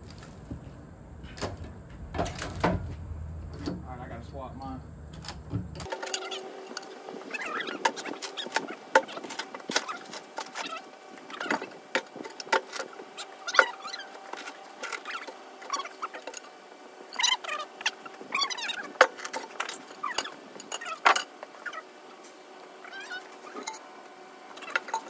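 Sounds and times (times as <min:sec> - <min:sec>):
short squeaks: 0:05.3 - 0:11.8, 0:13.2 - 0:16.5, 0:22.8 - 0:23.9.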